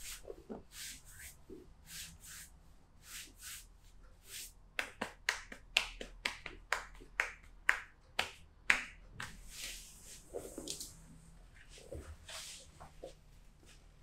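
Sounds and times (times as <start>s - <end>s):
soft hand sounds: 0.0s - 5.0s
hands slapping a back: 4.8s - 9.4s.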